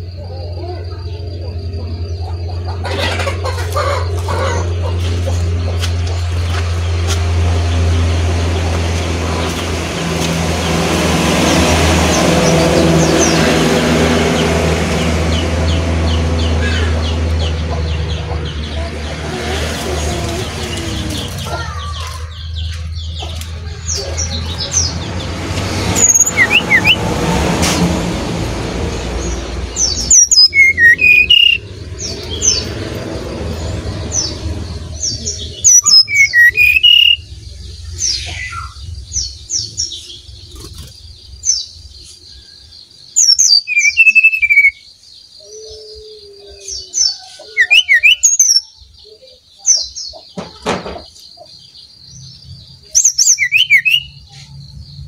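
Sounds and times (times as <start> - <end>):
bird singing: 0.0 - 27.3, 28.2 - 55.0
low vehicle rumble: 0.0 - 43.3.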